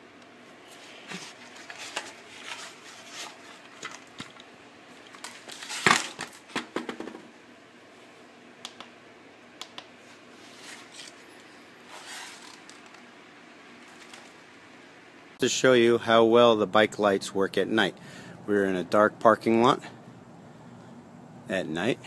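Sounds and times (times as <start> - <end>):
plastic helmet handling clicks: 8.6 - 9.0.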